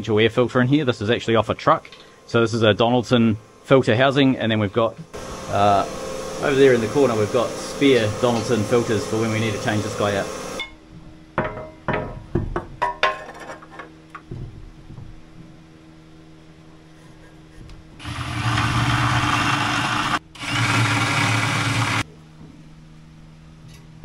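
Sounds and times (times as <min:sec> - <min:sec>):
power tool running: 0:05.2 - 0:10.6, 0:18.0 - 0:22.1.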